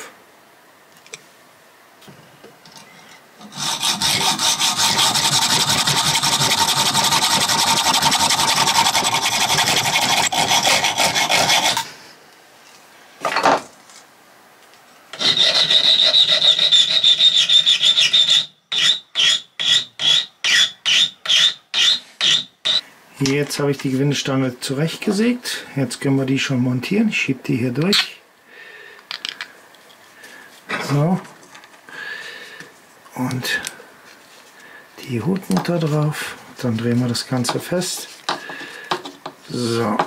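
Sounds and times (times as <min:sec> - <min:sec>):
hacksaw cutting steel rod: 0:03.4 - 0:11.8, 0:15.2 - 0:22.8
hand file rasping on metal: 0:03.4 - 0:11.8, 0:15.2 - 0:22.8.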